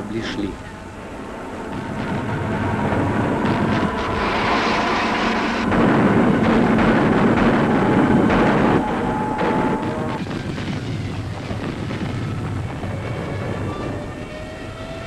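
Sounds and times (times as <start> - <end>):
steady whine: 0.0 - 15.0
gunfire: 1.7 - 13.0
bombs bursting: 1.7 - 14.0
explosions: 1.7 - 14.4.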